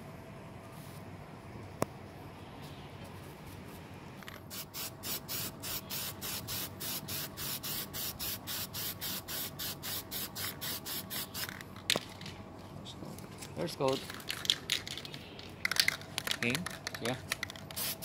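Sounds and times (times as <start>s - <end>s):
aerosol spray can hissing: 4.5s - 11.5s, 17.7s - 18.0s.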